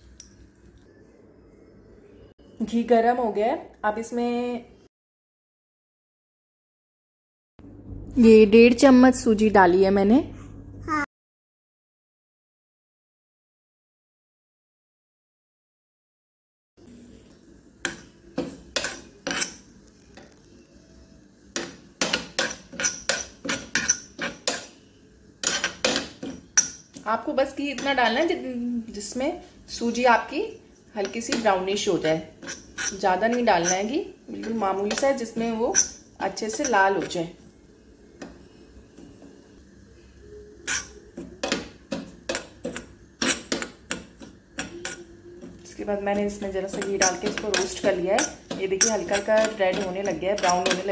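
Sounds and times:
spoon stirring and scraping pan: 16.9 - 20.6, 21.4 - 39.5, 40.6 - 50.9.

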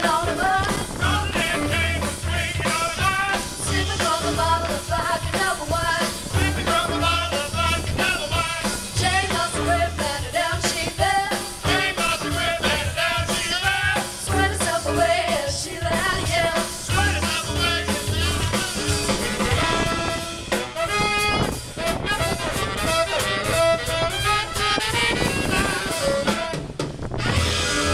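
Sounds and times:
women singing in harmony: 0.0 - 7.5, 8.7 - 18.0
swing band playing: 0.0 - 27.9
held saxophone note: 19.0 - 27.9.

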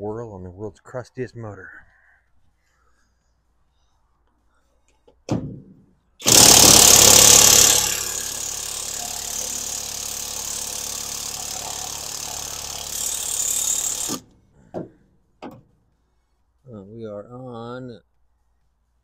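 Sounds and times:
impact wrench hammering: 6.2 - 14.9.

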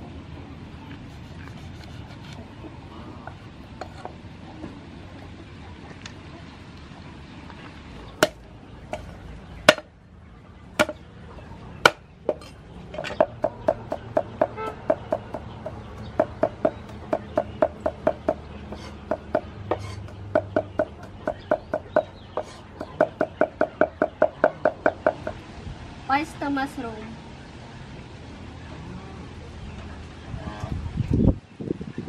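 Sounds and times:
knife chopping on wooden board: 10.8 - 11.0, 13.2 - 24.8.

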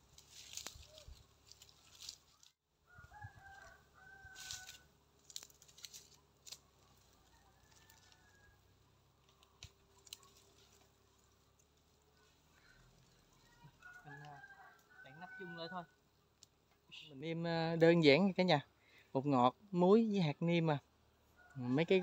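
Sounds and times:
wood fire crackling: 0.0 - 2.6, 4.3 - 15.0
rooster crowing: 2.8 - 4.9, 7.0 - 8.8, 12.6 - 16.0, 21.3 - 22.0.

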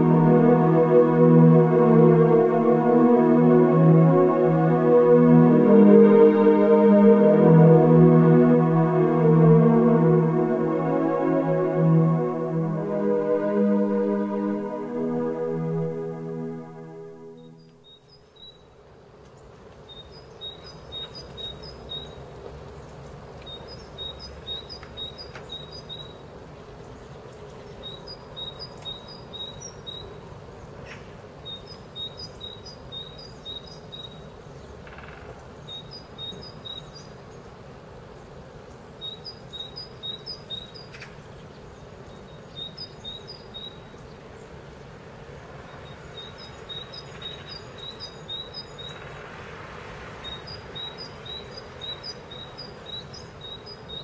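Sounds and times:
faint background noise: 0.0 - 54.0
small songbird chirping: 19.9 - 37.5, 38.2 - 44.6, 45.6 - 49.2, 50.2 - 54.0.

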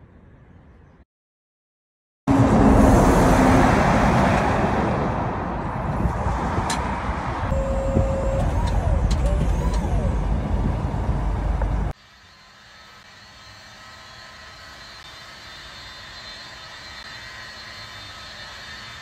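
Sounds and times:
wind and road rumble: 2.3 - 12.0.

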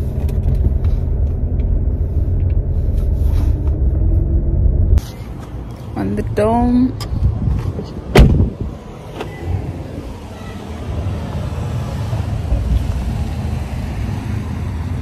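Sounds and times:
steady low rumble: 0.0 - 15.0
car door thump: 8.1 - 8.6.

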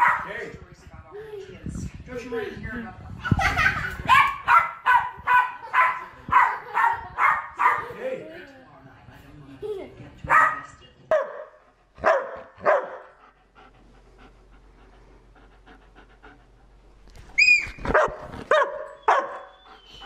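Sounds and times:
dogs barking: 0.0 - 0.4, 4.1 - 8.0, 10.3 - 13.2, 17.9 - 19.6
dog high-pitched cry: 17.4 - 18.0.

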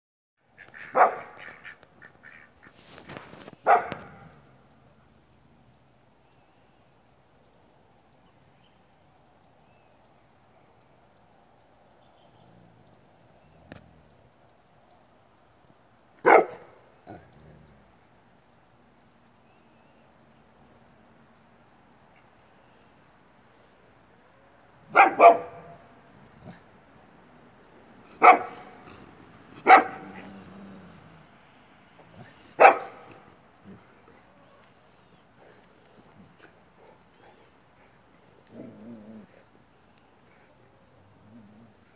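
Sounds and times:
dog barking: 0.9 - 1.4, 3.6 - 4.2, 16.2 - 16.7, 24.9 - 25.8, 28.2 - 28.8, 29.6 - 30.3, 32.6 - 33.2.

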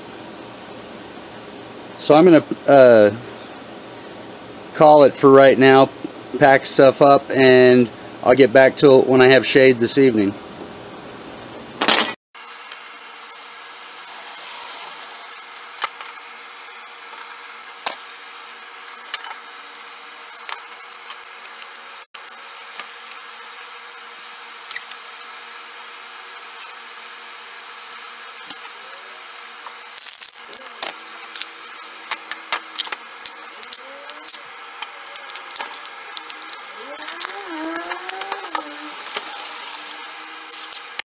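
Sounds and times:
steady low hum: 12.4 - 41.0.

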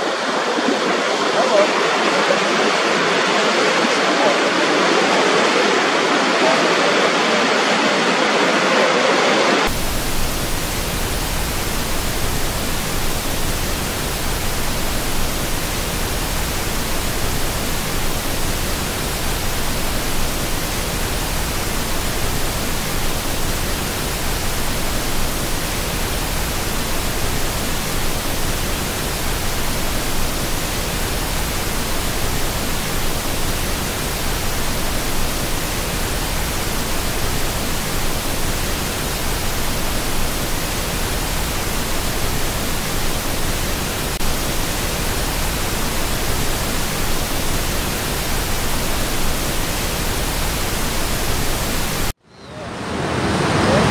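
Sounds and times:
static-like hiss: 0.0 - 53.9
waterfall roaring: 0.0 - 53.9.

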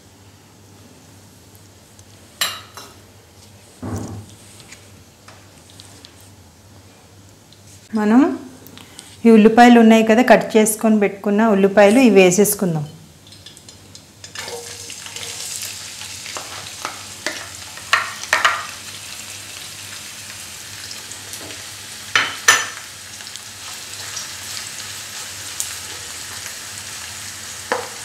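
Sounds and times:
onions sizzling in oil: 13.3 - 28.0.

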